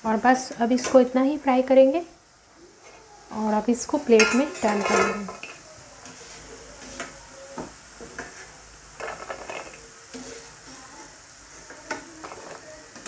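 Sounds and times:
dough sizzling in oil: 0:00.0 - 0:13.0
steel plate clinking on pan: 0:04.2 - 0:05.6.

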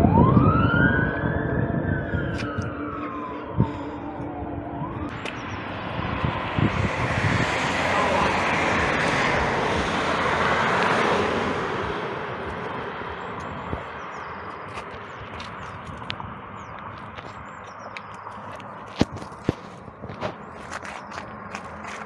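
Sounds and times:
vehicle passing by: 0:04.8 - 0:22.0.

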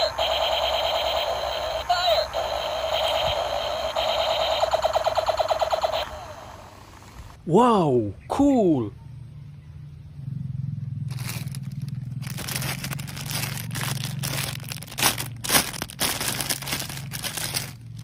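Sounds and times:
plastic bag crinkling: 0:11.1 - 0:18.0.

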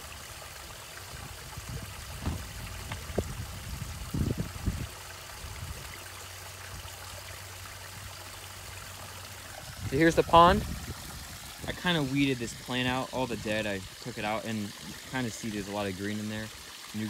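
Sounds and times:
air bubbles fizzing in water: 0:00.0 - 0:05.9
low thumps: 0:02.1 - 0:03.5.

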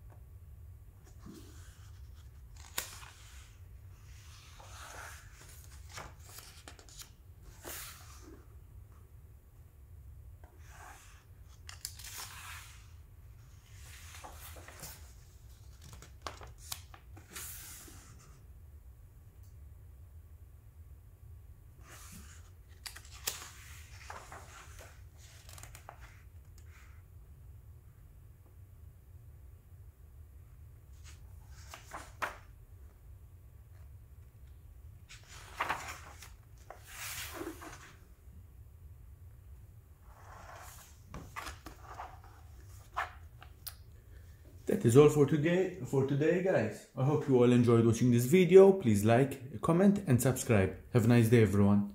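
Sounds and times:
book pages rustling: 0:01.0 - 0:08.5, 0:10.5 - 0:18.4, 0:21.8 - 0:27.0, 0:30.9 - 0:32.5, 0:35.1 - 0:38.0, 0:40.1 - 0:43.8.

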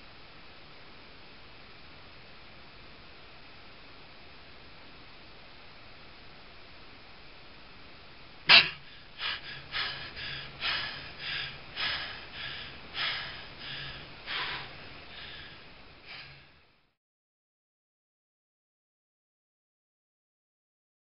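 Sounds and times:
man gasping: 0:08.5 - 0:16.5
heavy breathing: 0:08.5 - 0:16.7.

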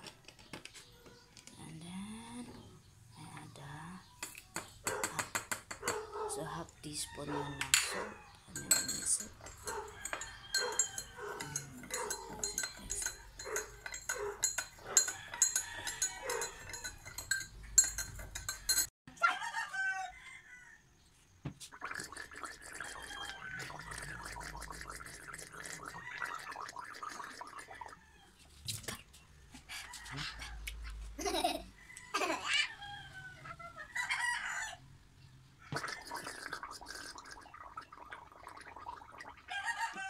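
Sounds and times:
spoon clinking against a glass: 0:07.6 - 0:18.9
person gargling: 0:21.8 - 0:22.9, 0:23.7 - 0:27.9, 0:35.7 - 0:39.4.

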